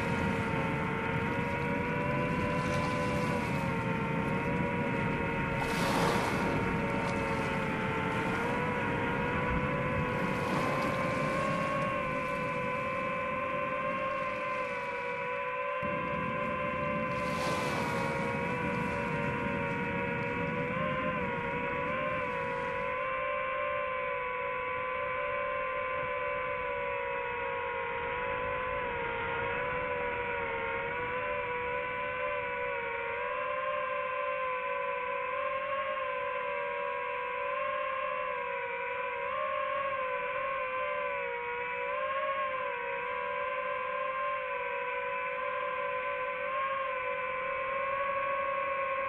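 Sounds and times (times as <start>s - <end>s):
surf: 0.0s - 23.5s
wind: 0.0s - 49.0s.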